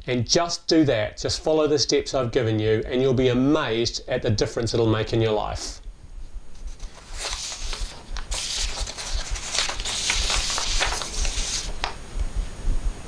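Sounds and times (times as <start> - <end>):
soft rustling and crackling: 6.2 - 12.6.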